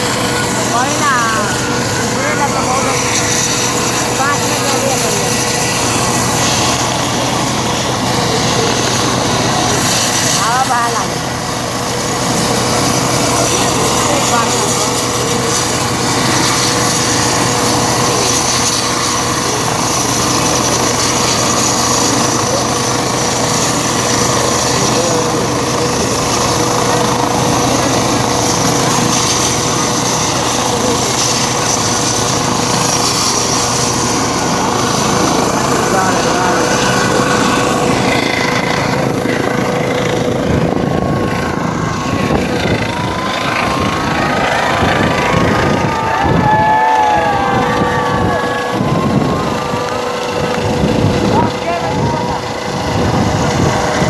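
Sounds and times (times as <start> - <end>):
helicopter turbine whine: 0.0 - 54.0.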